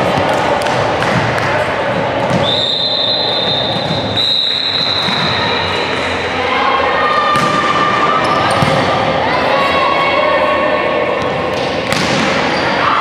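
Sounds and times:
volleyball being struck: 0:11.9 - 0:12.5.

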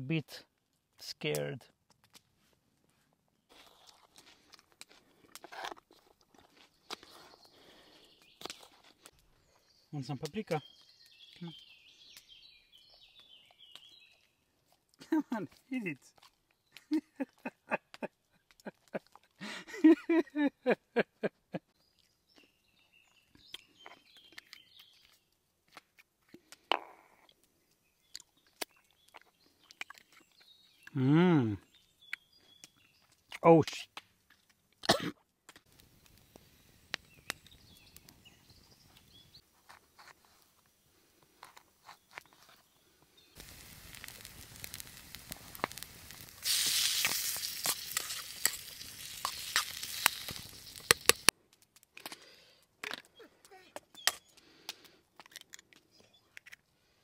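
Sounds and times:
man humming: 0:31.0 - 0:31.6.

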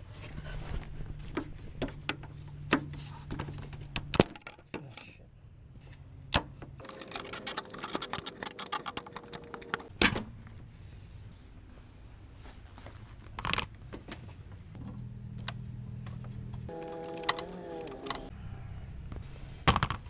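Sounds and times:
plastic clicking and rattling: 0:06.8 - 0:09.9.

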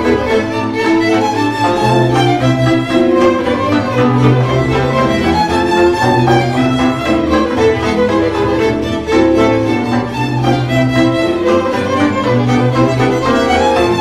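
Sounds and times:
bowed double bass low notes: 0:00.0 - 0:14.0
violas: 0:00.0 - 0:14.0
violins playing folk melody: 0:00.0 - 0:14.0.

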